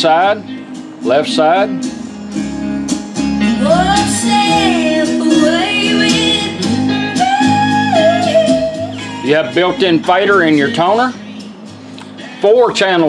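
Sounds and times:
country song on radio: 0:03.4 - 0:13.0.

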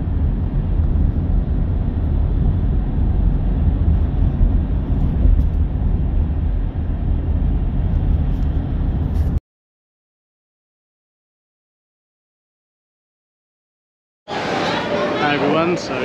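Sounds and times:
vehicle rumbling in motion: 0:00.0 - 0:09.4.

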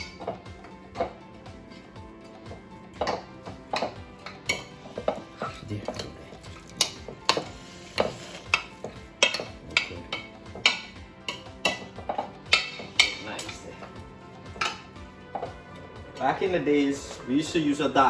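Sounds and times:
soft background music: 0:00.0 - 0:18.0.

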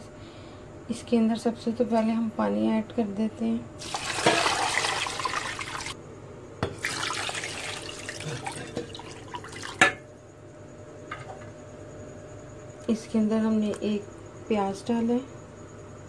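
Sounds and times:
water pouring into a pot: 0:03.8 - 0:06.0, 0:06.8 - 0:09.9.

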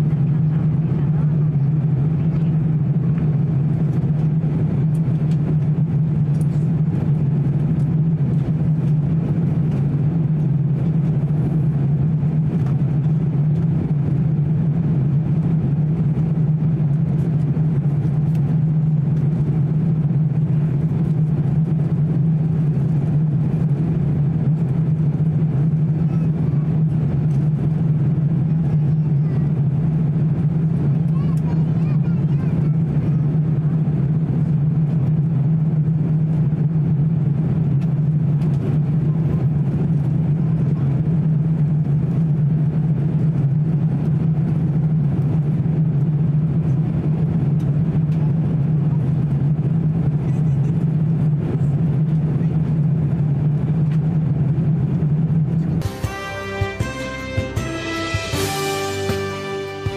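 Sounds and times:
jet engine cabin hum: 0:00.0 - 0:59.9
air rushing over fuselage: 0:54.5 - 0:59.9.

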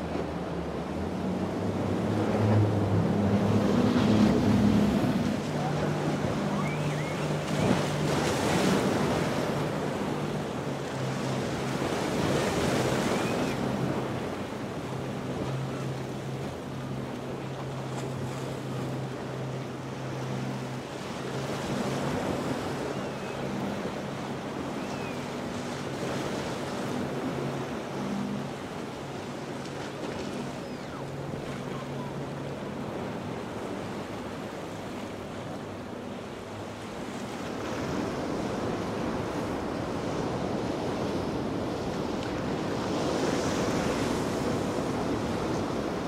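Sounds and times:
boat engine humming: 0:00.0 - 0:46.0
waves breaking: 0:00.0 - 0:46.0.

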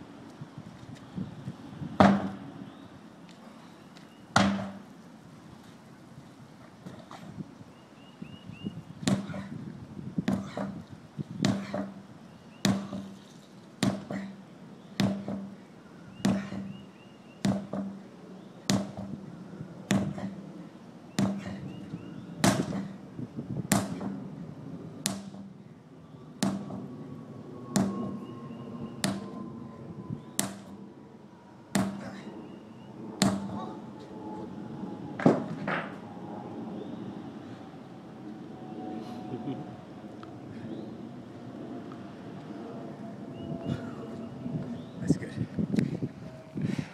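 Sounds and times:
sledgehammer striking tractor tire: 0:02.0 - 0:02.4, 0:04.4 - 0:04.8, 0:12.6 - 0:13.2, 0:13.8 - 0:14.2, 0:15.0 - 0:15.6, 0:16.2 - 0:16.7, 0:17.4 - 0:18.0, 0:18.7 - 0:19.2, 0:19.9 - 0:20.3, 0:21.2 - 0:21.6, 0:22.4 - 0:22.9, 0:23.7 - 0:24.2, 0:25.0 - 0:25.5, 0:26.4 - 0:26.8, 0:27.8 - 0:28.2, 0:30.4 - 0:30.7, 0:31.7 - 0:32.2, 0:33.2 - 0:33.6.

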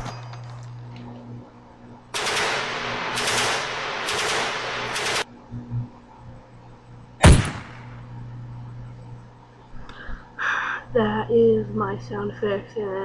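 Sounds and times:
rapid automatic gunfire: 0:02.1 - 0:05.3
single loud gunshot: 0:07.2 - 0:07.9.

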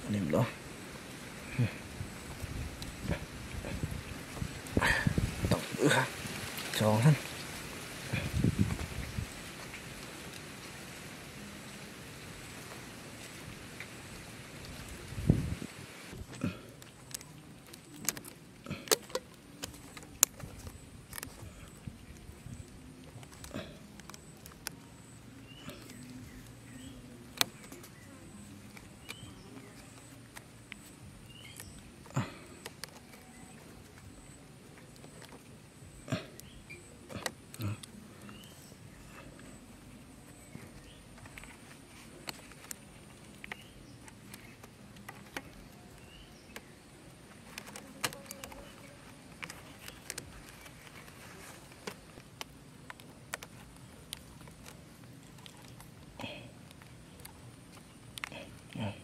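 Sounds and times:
faint background noise: 0:00.0 - 0:59.0
rubber bands snapping: 0:16.2 - 0:24.8, 0:40.5 - 0:59.0.

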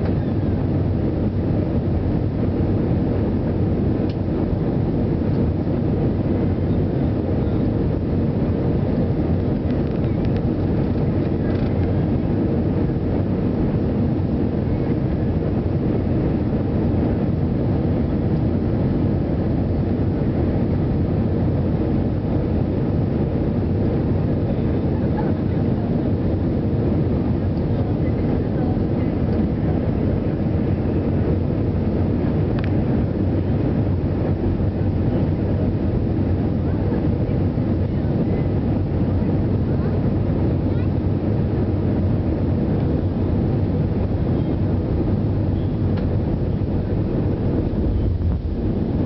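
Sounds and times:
jet engines droning in cabin: 0:00.0 - 0:49.0
rushing air: 0:41.3 - 0:49.0.

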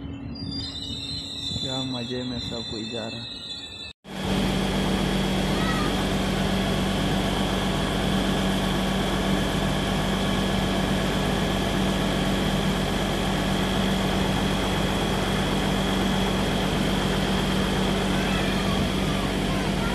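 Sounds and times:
high whine: 0:00.0 - 0:19.9
diesel engine droning: 0:04.1 - 0:19.9.

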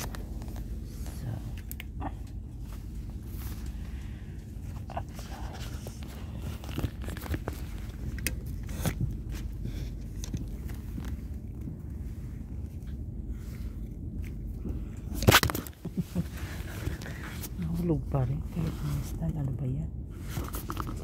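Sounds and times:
train carriage rumble and hum: 0:00.0 - 0:21.0
phone handling rustling and clicks: 0:15.0 - 0:15.9.

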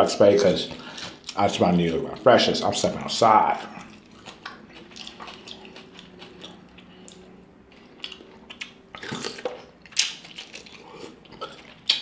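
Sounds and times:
biting and chewing: 0:03.6 - 0:12.0
wet squishing and small clicks: 0:09.4 - 0:12.0.

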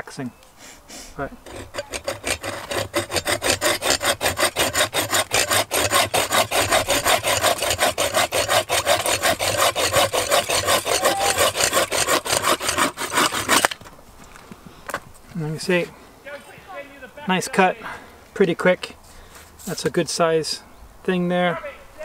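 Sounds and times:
saw cutting through branch: 0:01.2 - 0:13.8.

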